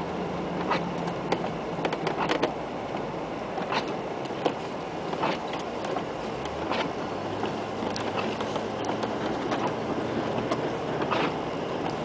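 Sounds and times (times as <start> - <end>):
car engine and driving noise: 0.0 - 12.0
irregular knocks and clicks: 0.6 - 2.5.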